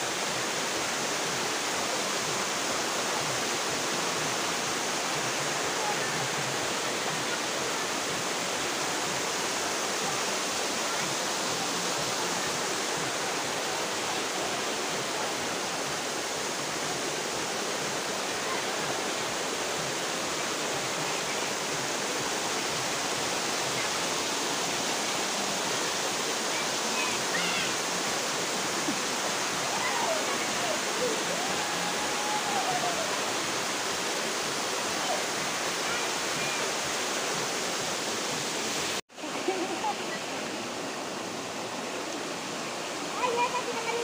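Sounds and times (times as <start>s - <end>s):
waterfall over rocks: 0.0s - 44.0s.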